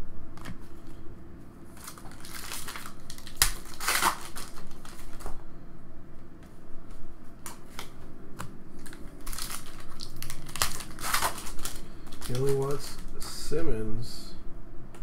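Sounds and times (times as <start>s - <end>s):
foil wrapper crinkling: 1.7s - 5.4s, 8.8s - 13.2s.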